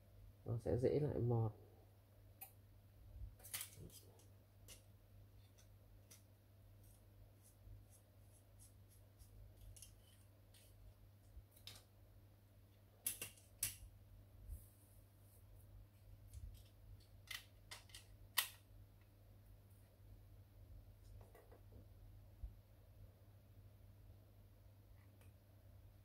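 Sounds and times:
low steady hum: 0.0 - 26.0
clicks and taps of small parts: 3.4 - 6.3, 11.6 - 11.9, 13.0 - 13.8, 16.3 - 19.1.

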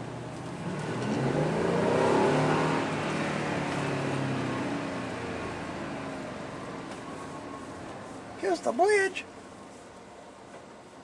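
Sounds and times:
truck engine accelerating: 0.0 - 8.1
road noise: 0.0 - 11.0.

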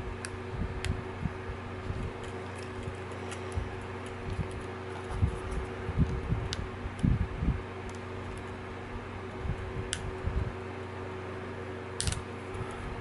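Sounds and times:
steady low hum: 0.0 - 13.0
small plastic clicks: 12.0 - 12.2.

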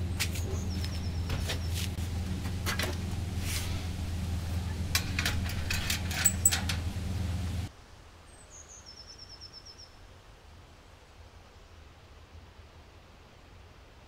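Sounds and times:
steady low hum: 0.0 - 7.7
clicks and metal knocks: 0.2 - 3.2, 4.6 - 7.0.

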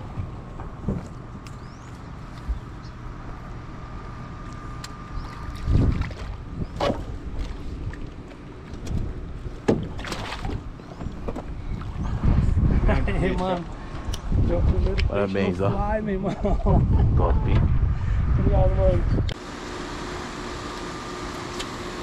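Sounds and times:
boat engine hum: 0.0 - 12.2, 19.3 - 22.0
wind on microphone: 5.4 - 7.8, 10.5 - 13.4, 14.0 - 19.4.

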